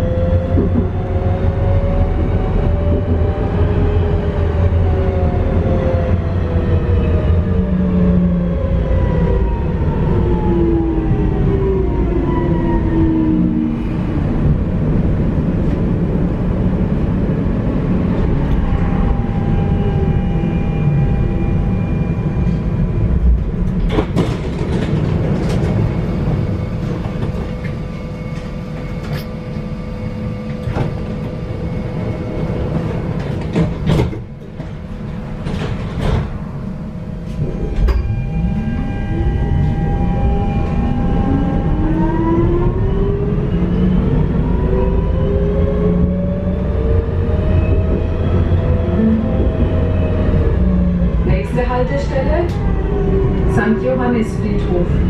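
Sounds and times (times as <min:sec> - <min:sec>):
tram rumbling along rails: 0:00.0 - 0:55.0.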